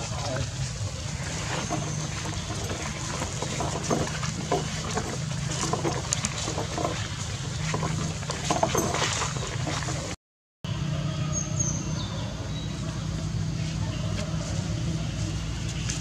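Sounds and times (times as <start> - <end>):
low engine-like hum: 0.0 - 16.0
scuffs and rustles in dry leaves: 12.7 - 16.0.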